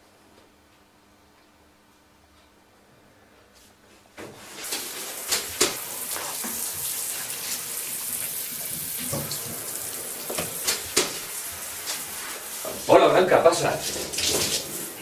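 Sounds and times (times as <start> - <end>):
shower water spraying into tub: 4.4 - 15.0.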